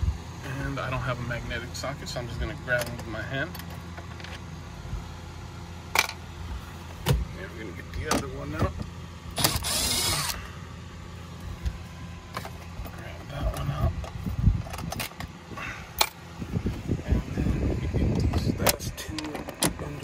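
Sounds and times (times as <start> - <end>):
steady low hum: 0.0 - 20.0
cordless drill whirring: 9.3 - 10.5.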